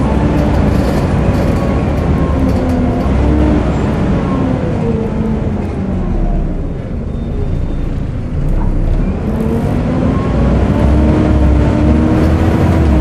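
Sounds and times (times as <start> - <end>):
bus diesel engine revving: 0.0 - 13.0.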